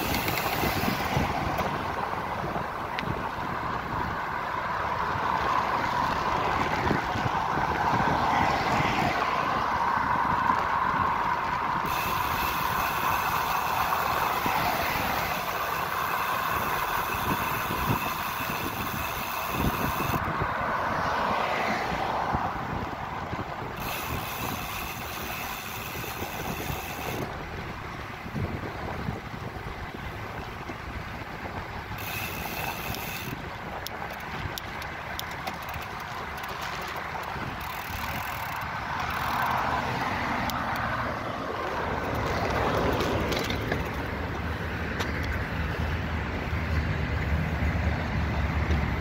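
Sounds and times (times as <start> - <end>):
passing cars: 0.0 - 49.0
wind rushing over microphone: 0.0 - 49.0.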